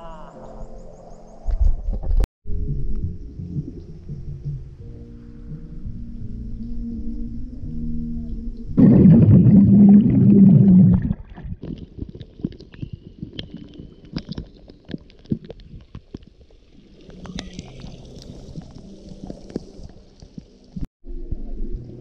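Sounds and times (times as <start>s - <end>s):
underwater bubble clicks: 8.8s - 16.4s.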